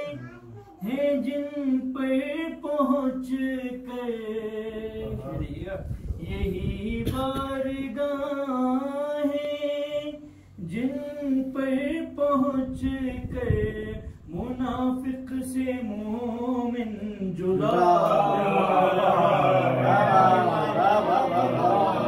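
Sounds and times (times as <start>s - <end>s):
man singing unaccompanied: 0.0s - 22.0s.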